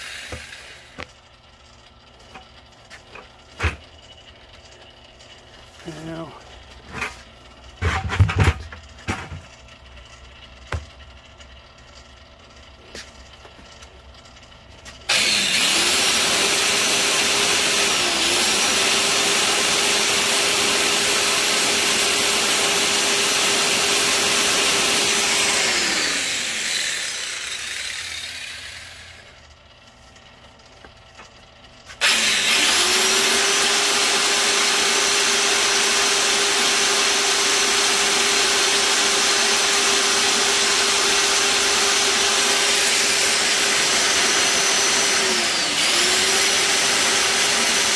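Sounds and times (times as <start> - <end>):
belt polisher motor humming: 0.0 - 1.1, 15.1 - 31.3, 31.9 - 47.9.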